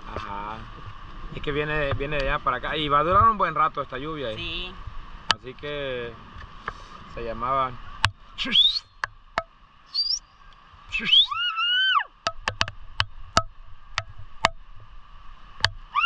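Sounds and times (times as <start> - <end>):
animal call rising and falling: 8.4 - 8.9, 9.9 - 10.3, 10.9 - 12.2.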